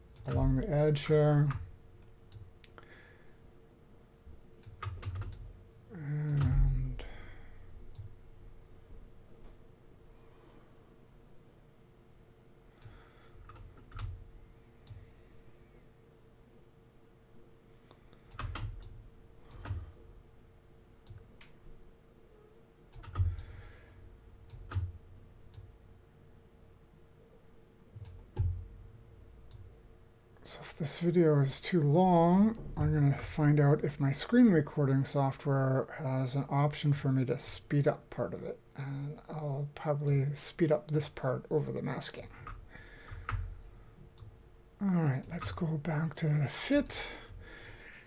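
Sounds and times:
person humming: 5.9 - 7.2
computer mouse clicks: 18.1 - 19.8.

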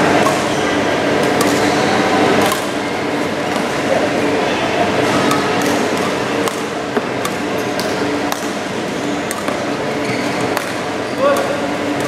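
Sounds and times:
rackets hitting shuttlecocks: 0.0 - 2.8, 5.1 - 9.8, 10.4 - 12.0
hall background noise: 0.0 - 12.0.

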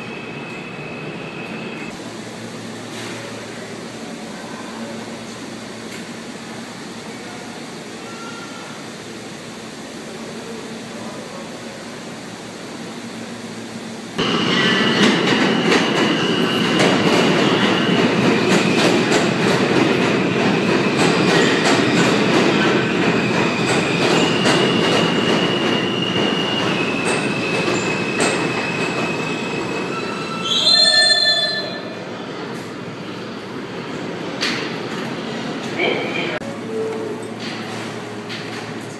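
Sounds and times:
subway train rumble: 0.0 - 38.9
high-pitched wheel squeal: 29.8 - 31.9.

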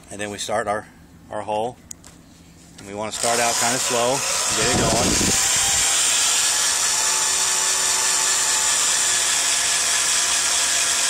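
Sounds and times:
drill bit grinding into steel: 3.2 - 11.0.

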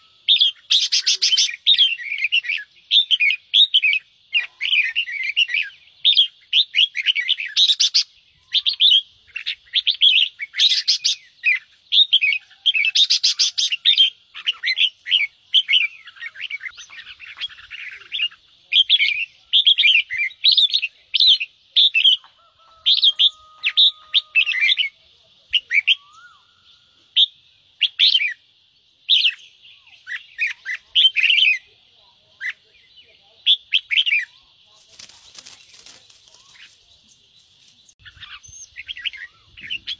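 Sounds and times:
bulbul scolding chatter: 30.5 - 38.0.

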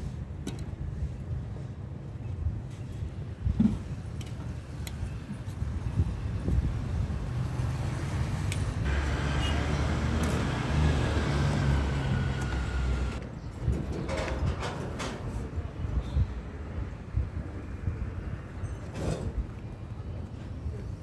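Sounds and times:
low traffic rumble: 0.0 - 21.0
car passing: 8.9 - 13.2.

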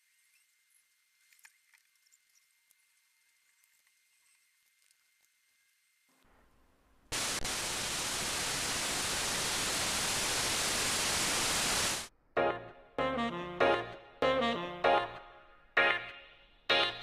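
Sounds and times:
static hiss: 2.8 - 12.1.

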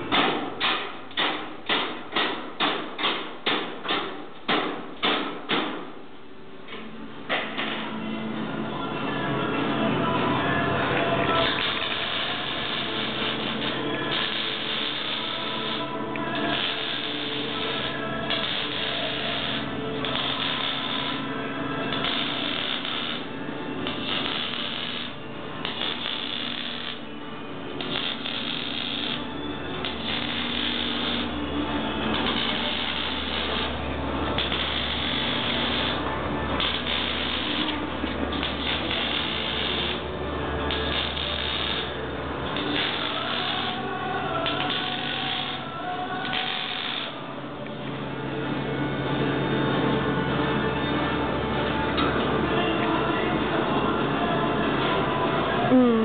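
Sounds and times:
welding arc crackling and hissing: 11.4 - 21.3, 21.9 - 27.0, 27.7 - 31.4, 32.1 - 40.1, 40.7 - 47.2.

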